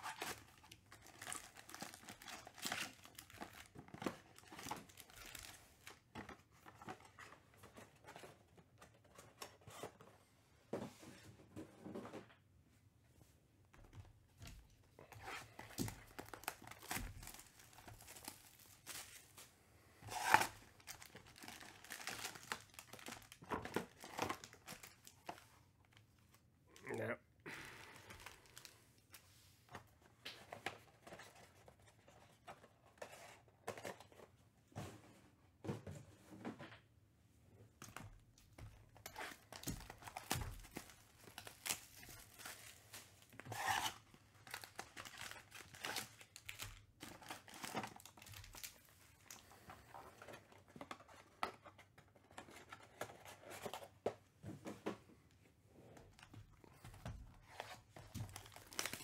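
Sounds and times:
foil packs crinkling and rustling: 0.0s - 8.3s, 15.2s - 26.0s, 37.9s - 53.9s, 56.2s - 59.0s
knife slitting plastic wrap: 20.1s - 20.6s, 43.4s - 44.0s.

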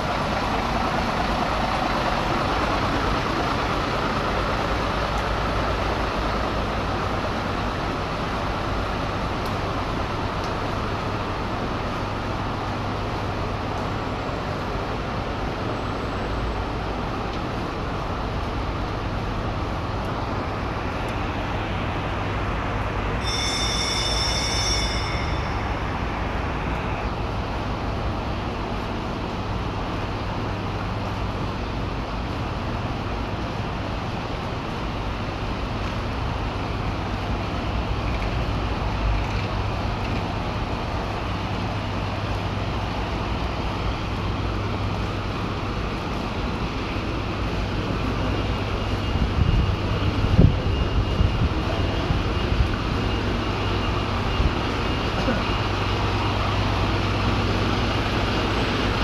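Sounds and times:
steady rain: 0.0s - 23.2s, 25.6s - 59.0s
short high-pitched tone: 23.2s - 26.9s.

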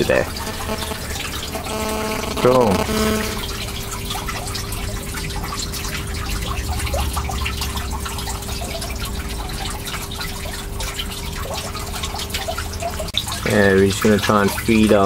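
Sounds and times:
low hum: 0.0s - 10.9s
water trickling and dripping: 0.0s - 15.0s.

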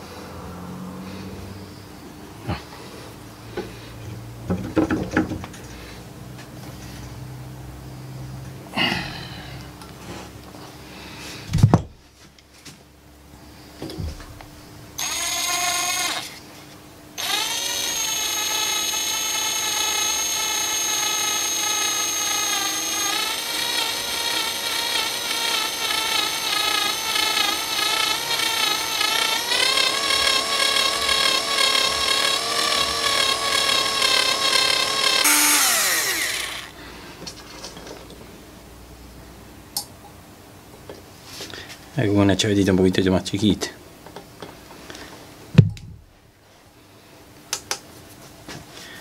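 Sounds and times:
cordless drill whining through metal: 15.0s - 16.4s, 17.2s - 36.8s.

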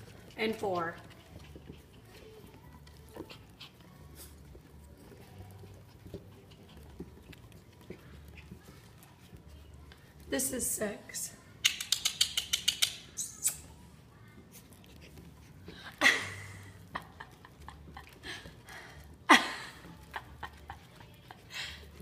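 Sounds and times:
puppy squeaks: 11.6s - 13.8s.

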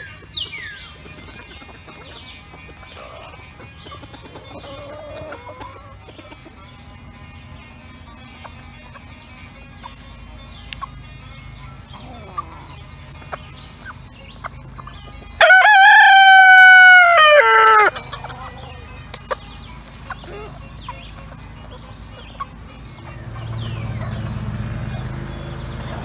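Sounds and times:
rooster crowing: 15.4s - 18.0s.

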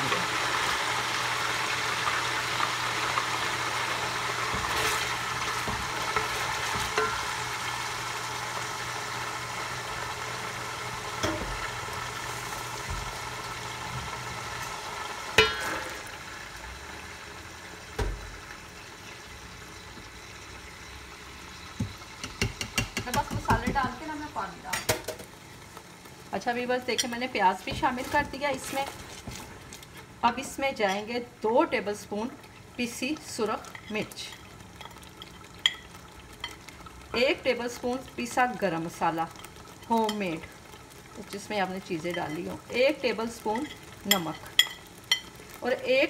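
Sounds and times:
hot oil sizzling: 0.0s - 46.0s
sharp knocks on pot: 21.8s - 24.0s.

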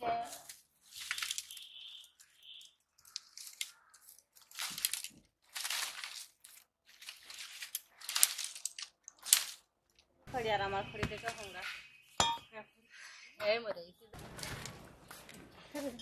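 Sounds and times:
dry twigs crackling and rustling: 0.2s - 10.2s, 14.2s - 16.0s.

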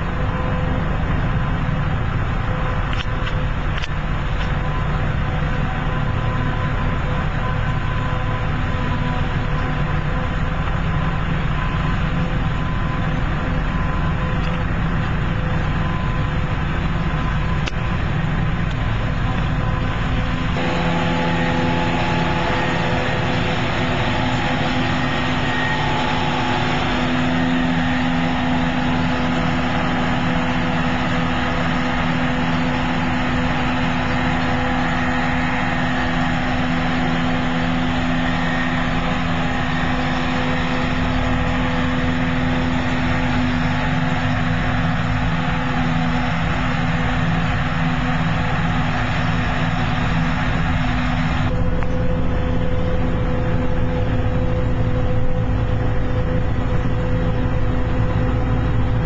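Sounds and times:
tractor engine: 0.0s - 59.0s
forage harvester chopping grass: 18.5s - 52.0s.

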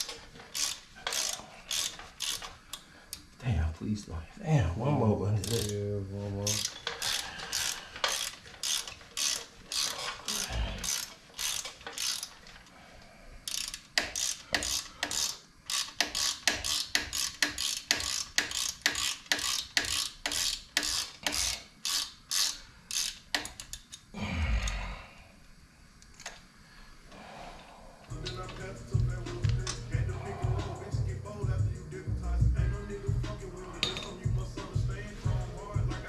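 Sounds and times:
ratchet wrench clicking: 0.0s - 3.3s, 5.4s - 5.8s, 6.4s - 12.6s, 13.4s - 24.0s, 28.1s - 31.6s, 32.8s - 36.0s.

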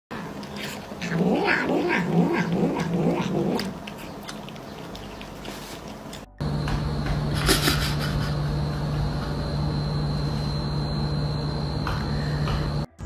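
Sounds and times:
cat growly murmurs: 0.2s - 3.8s.

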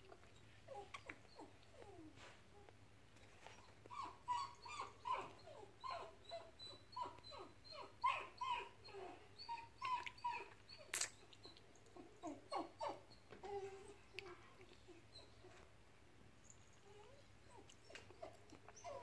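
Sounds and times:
dog whining: 0.7s - 2.7s, 3.4s - 14.2s, 16.8s - 19.0s.

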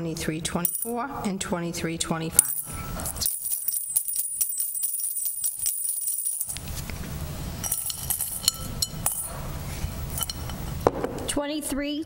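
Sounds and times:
handling with scattered clinks: 0.6s - 1.0s, 2.4s - 7.0s, 7.6s - 9.4s, 10.0s - 10.8s
metal tags jingling in glass bowl: 0.6s - 1.0s, 2.4s - 6.6s, 7.6s - 9.4s, 10.1s - 10.6s.

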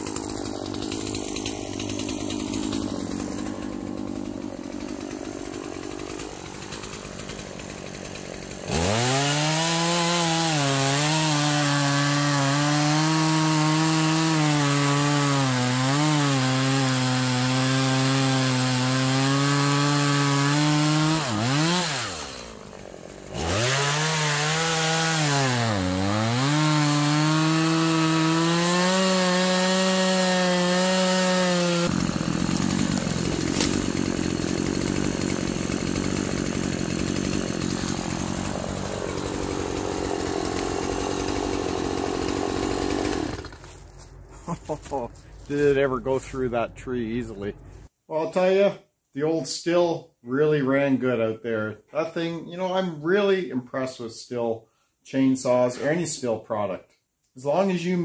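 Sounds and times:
chainsaw cutting wood: 0.0s - 44.0s.

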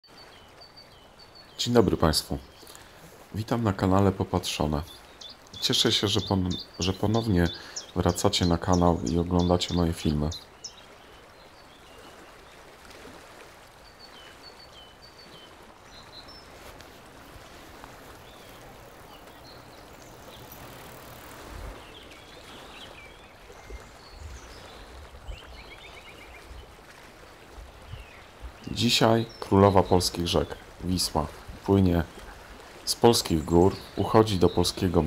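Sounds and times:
river hiss: 0.2s - 35.0s
bird chirps: 4.8s - 10.8s.

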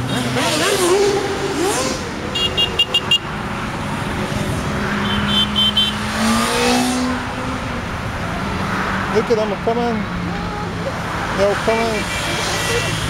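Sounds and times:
motorway traffic: 0.0s - 13.0s
motorcycle passing by: 4.2s - 7.7s.

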